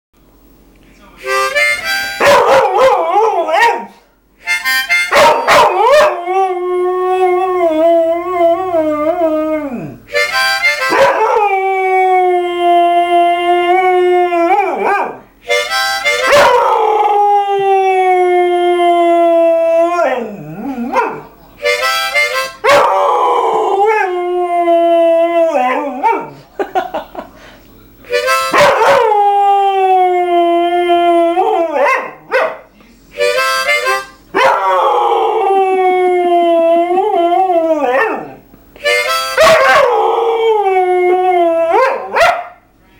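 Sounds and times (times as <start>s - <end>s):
harmonica phrases: 1.0s - 2.3s, 4.4s - 5.5s, 10.1s - 11.0s, 15.4s - 16.3s, 21.4s - 22.6s, 27.4s - 28.6s, 33.0s - 34.4s, 38.8s - 39.4s
dog howling: 2.2s - 3.9s, 5.2s - 10.0s, 10.9s - 15.2s, 16.3s - 21.2s, 22.6s - 26.4s, 28.5s - 32.5s, 34.4s - 38.4s, 39.4s - 42.5s.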